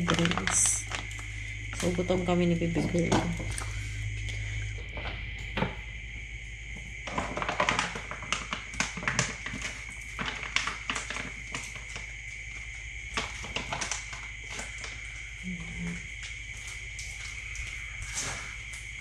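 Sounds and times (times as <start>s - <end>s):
plastic pouch crinkling: 0.0s - 1.5s, 7.0s - 15.1s.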